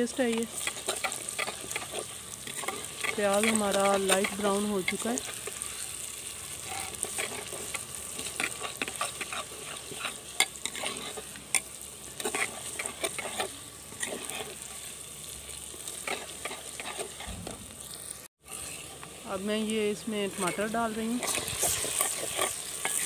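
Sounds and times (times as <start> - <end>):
onions sizzling in ghee: 0.0 - 23.0
ladle scraping clay pot: 6.6 - 11.3, 20.4 - 23.0.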